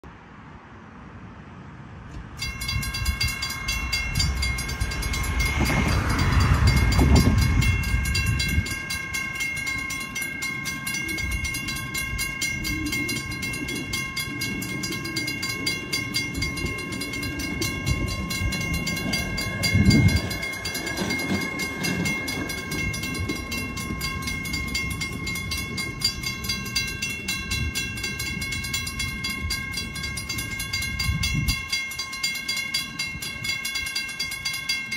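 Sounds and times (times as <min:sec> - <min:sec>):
electronic crossing bells dinging: 0:02.4 - 0:34.9
low rumbles: 0:11.3 - 0:31.7.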